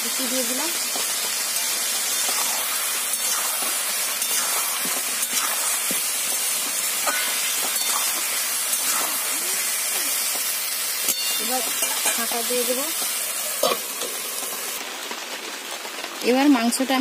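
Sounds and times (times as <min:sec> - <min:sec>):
food sizzling in oil: 0:00.0 - 0:17.0
metal spatula scraping: 0:01.6 - 0:06.0, 0:07.0 - 0:09.3.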